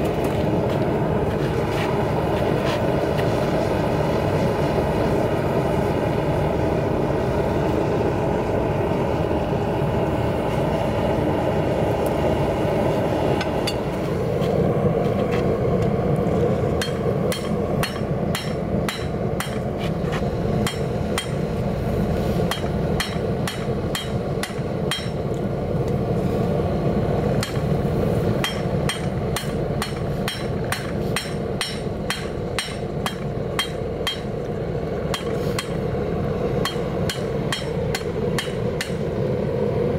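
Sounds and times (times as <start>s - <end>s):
gas forge burner rushing: 0.0s - 39.9s
hammer striking metal on anvil: 16.8s - 19.7s, 20.6s - 21.5s, 22.5s - 25.2s, 27.4s - 27.7s, 28.4s - 34.4s, 35.1s - 35.8s, 36.6s - 39.1s.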